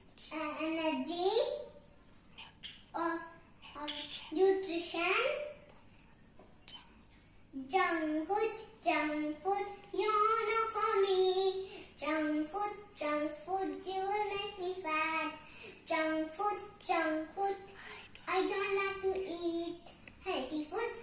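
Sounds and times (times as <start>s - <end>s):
girl singing unaccompanied: 0.0s - 1.7s, 7.5s - 21.0s.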